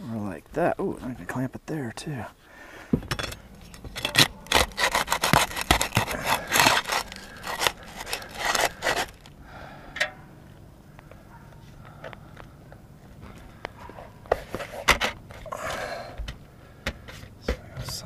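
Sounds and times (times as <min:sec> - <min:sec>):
flat bar scraping roof shingles: 0:03.1 - 0:09.3.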